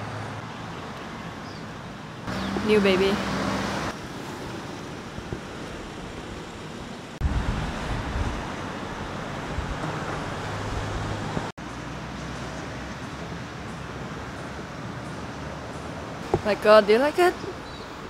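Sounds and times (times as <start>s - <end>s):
road traffic noise: 0.0s - 18.0s
wind rumbling on microphone: 3.9s - 11.5s.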